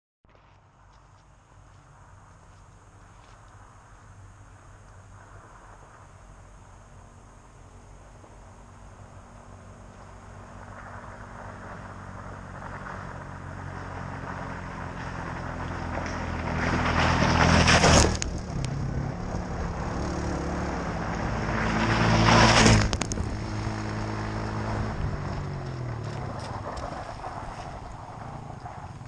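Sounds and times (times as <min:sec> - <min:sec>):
vehicle engines passing: 0:00.8 - 0:29.0
gravel spraying: 0:09.3 - 0:29.0.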